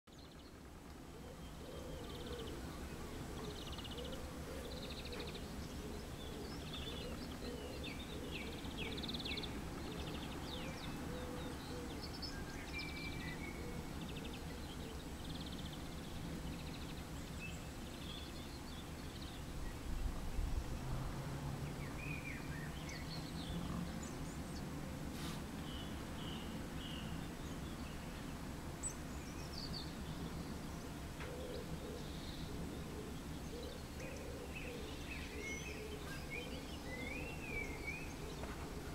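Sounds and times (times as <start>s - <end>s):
small birds chirping: 0.1s - 20.7s, 21.6s - 38.9s.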